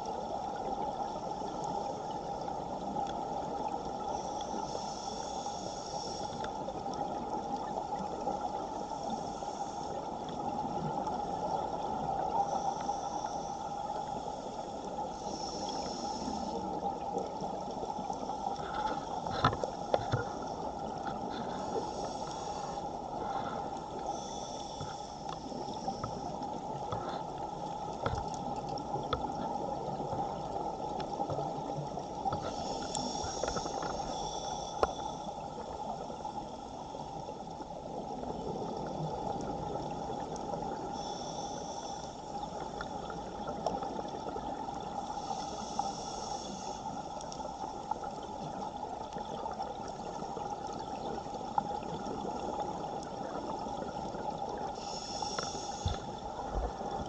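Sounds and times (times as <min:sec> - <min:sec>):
scuba regulator breathing: 0:04.0 - 0:06.6, 0:08.8 - 0:10.2, 0:12.3 - 0:16.8, 0:18.0 - 0:27.4, 0:32.3 - 0:35.4, 0:40.8 - 0:42.9, 0:45.0 - 0:47.6, 0:54.6 - 0:56.3.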